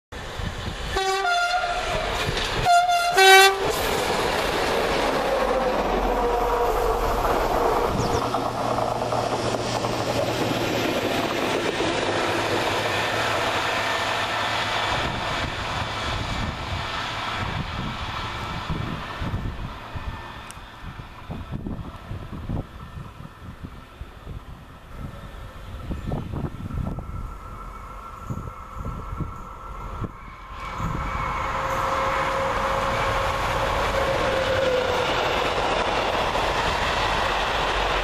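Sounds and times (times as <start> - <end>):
train rolling rumble: 0.2 - 38.0
locomotive two-tone horn: 0.9 - 3.8, 29.8 - 35.3.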